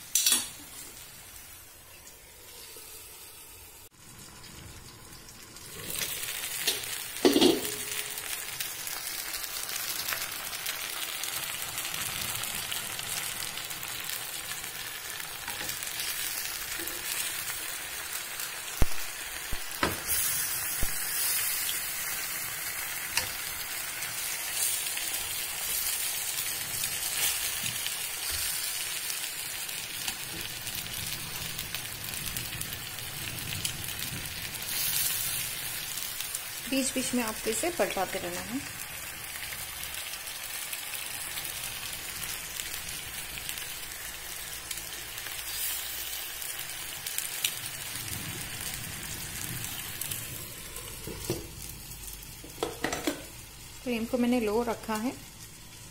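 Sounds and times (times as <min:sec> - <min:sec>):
chicken sizzling in a pan: 0:00.0 - 0:55.9.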